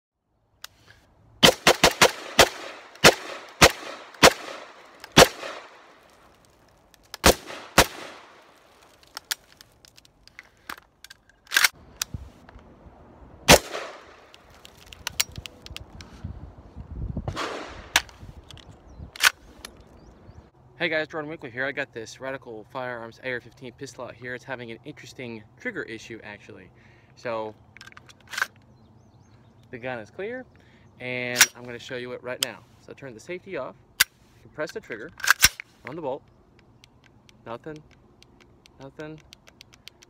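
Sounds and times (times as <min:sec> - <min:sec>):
pistol gunshots with echo: 0:01.4 - 0:05.9, 0:07.2 - 0:08.4, 0:13.5 - 0:14.3, 0:17.3 - 0:17.9.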